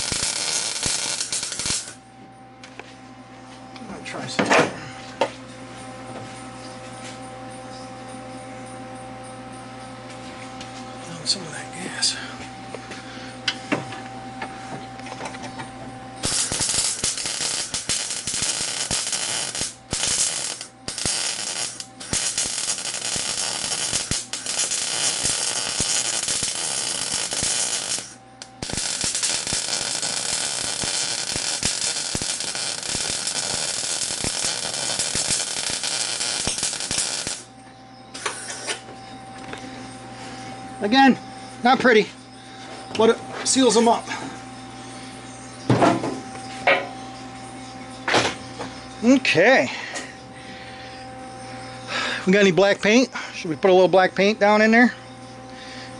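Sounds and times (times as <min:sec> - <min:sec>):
welder crackling: 0:00.0 - 0:02.0, 0:16.2 - 0:37.5.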